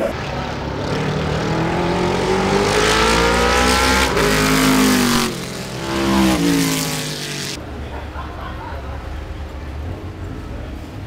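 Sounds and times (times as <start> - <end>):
race car engine accelerating: 0.2 - 7.6.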